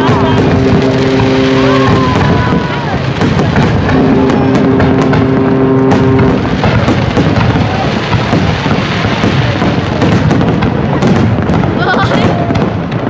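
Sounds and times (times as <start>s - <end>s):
two-note horn: 0.0s - 2.7s, 3.8s - 6.5s
fireworks booming and crackling: 0.0s - 13.0s.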